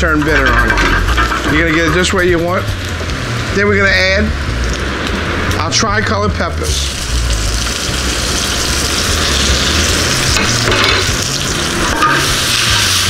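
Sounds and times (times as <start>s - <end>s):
vegetables sizzling in hot oil: 6.6s - 13.0s.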